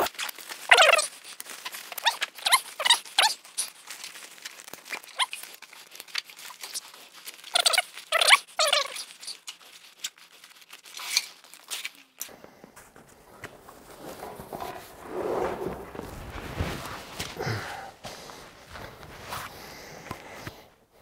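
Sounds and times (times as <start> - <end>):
straps pulled through buckles: 0.0 - 12.4
nylon fabric rubbing: 12.8 - 19.7.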